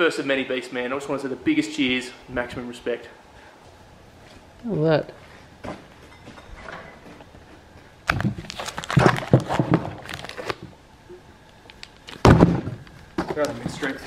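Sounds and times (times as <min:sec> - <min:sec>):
plastic bags crinkling: 0:08.0 - 0:10.6.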